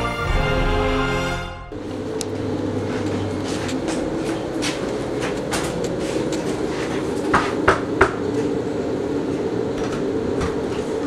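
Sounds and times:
low drone: 0:00.0 - 0:07.2.

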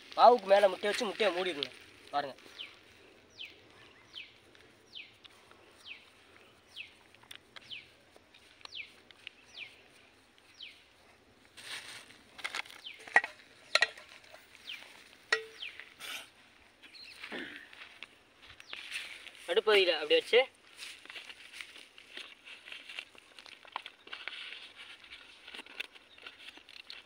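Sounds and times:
bird chirping: 0:02.4 - 0:11.1, 0:12.5 - 0:17.3, 0:18.5 - 0:19.4, 0:25.9 - 0:26.8.

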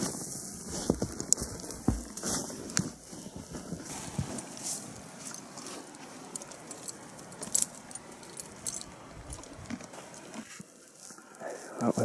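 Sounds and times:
mule steps in snow: 0:00.0 - 0:07.5
metal tack jingling: 0:05.2 - 0:10.3.

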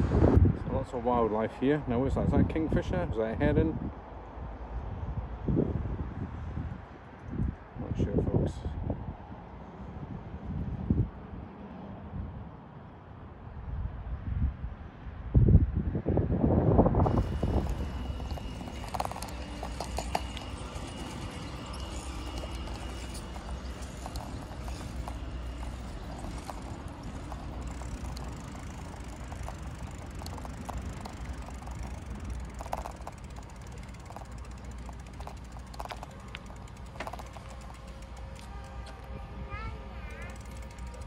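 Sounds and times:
bicycle tyre and wind rumble: 0:00.0 - 0:41.0
bike clicks and rattles: 0:17.0 - 0:39.2, 0:40.0 - 0:41.0.

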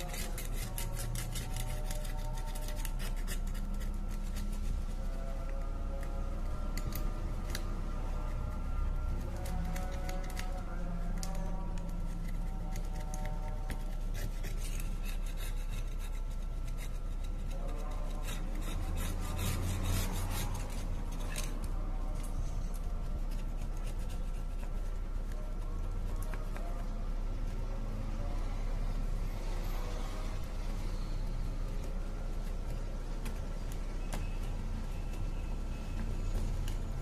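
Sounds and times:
steady low hum: 0:00.0 - 0:37.0
gloved fingers rubbing on metal: 0:11.2 - 0:21.6.

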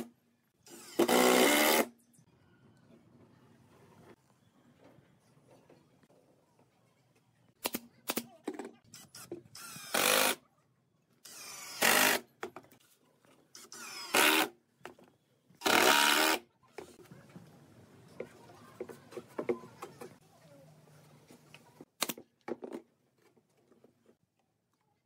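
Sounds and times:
cordless drill boring wood: 0:00.7 - 0:01.9, 0:09.6 - 0:10.4, 0:11.2 - 0:12.2, 0:13.6 - 0:14.5, 0:15.6 - 0:16.4.

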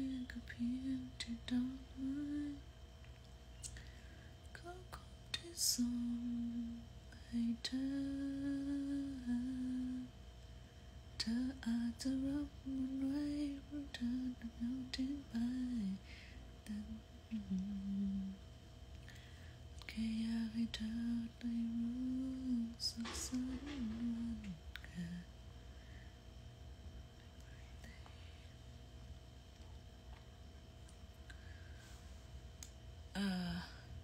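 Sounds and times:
woman humming a slow tune: 0:00.0 - 0:02.7, 0:04.5 - 0:10.2, 0:11.2 - 0:18.4, 0:19.9 - 0:25.3, 0:33.1 - 0:34.0.

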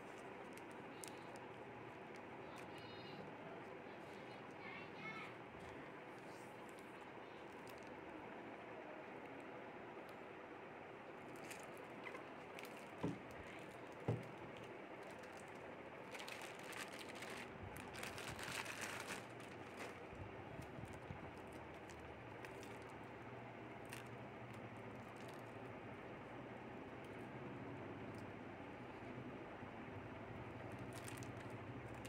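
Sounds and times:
plastic bags crinkling: 0:11.2 - 0:23.2, 0:24.9 - 0:25.5, 0:30.8 - 0:32.0.

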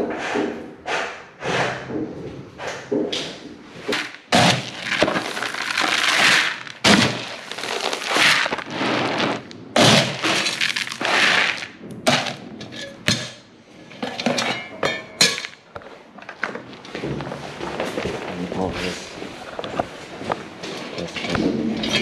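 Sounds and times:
pellets poured into plastic bucket: 0:04.5 - 0:12.4.

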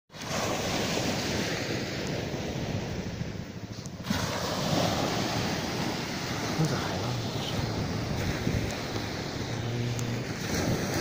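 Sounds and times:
small waves breaking on beach: 0:00.1 - 0:11.0
wind buffeting microphone: 0:00.3 - 0:11.0.

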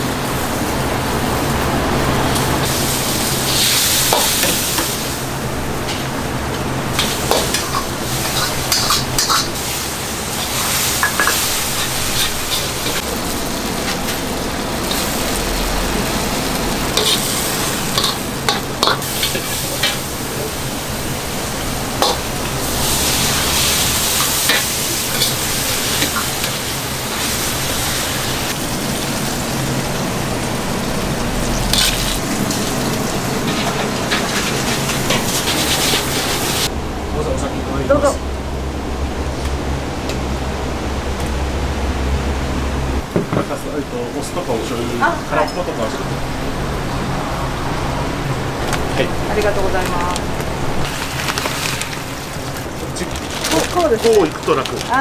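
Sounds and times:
food sizzling in a wok: 0:00.0 - 0:36.7, 0:46.2 - 0:55.0
ladle clacking on wok: 0:07.0 - 0:09.6, 0:11.0 - 0:13.0
metal ladle scraping a pan: 0:07.0 - 0:09.6, 0:10.4 - 0:13.0, 0:16.9 - 0:20.1.

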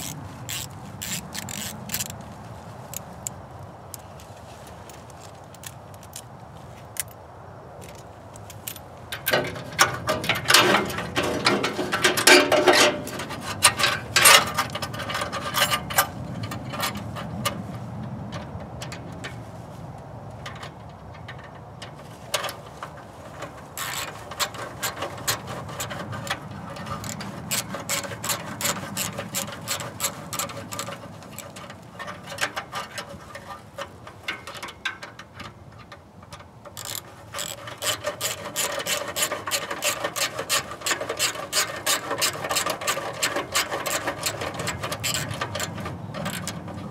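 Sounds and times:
socket ratchet clicking: 0:00.0 - 0:02.2, 0:23.8 - 0:32.8, 0:34.2 - 0:46.8.

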